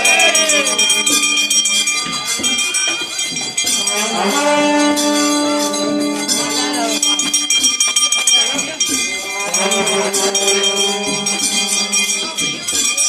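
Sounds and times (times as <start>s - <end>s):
bells and cymbals clashing: 0.0s - 13.0s
crowd: 0.0s - 13.0s
long held low note: 3.8s - 7.7s, 9.4s - 12.3s.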